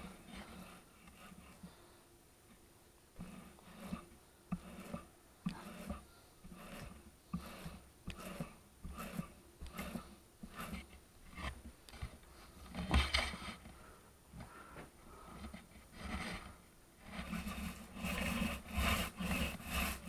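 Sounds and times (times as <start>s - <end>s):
paint roller rolling in tray: 0.0s - 1.6s, 3.2s - 11.7s, 15.3s - 20.0s.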